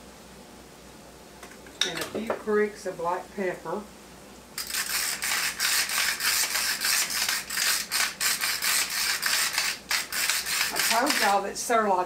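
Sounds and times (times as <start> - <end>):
pepper mill grinding: 4.6 - 11.4.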